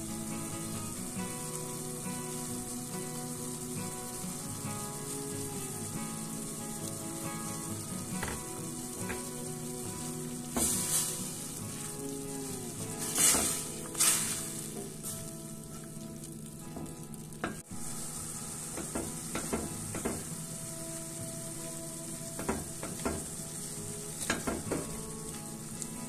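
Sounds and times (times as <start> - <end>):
sauce sizzling in a pan: 0.0 - 26.0
spatula scraping a pan: 13.0 - 14.7.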